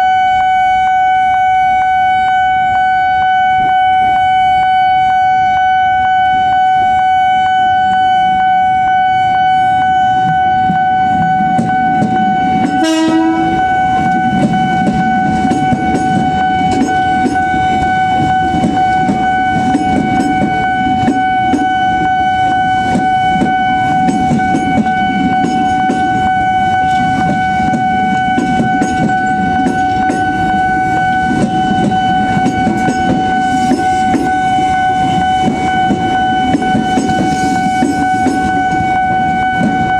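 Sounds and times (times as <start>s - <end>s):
railroad crossing alarm: 0.0s - 39.9s
train horn blast: 0.0s - 39.9s
train wheels clattering over rails: 11.4s - 38.9s.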